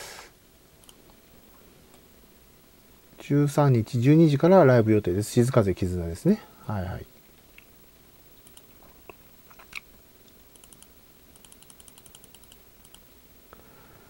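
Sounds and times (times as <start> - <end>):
computer mouse clicking: 0.8 - 1.2, 8.4 - 8.8, 9.5 - 13.1.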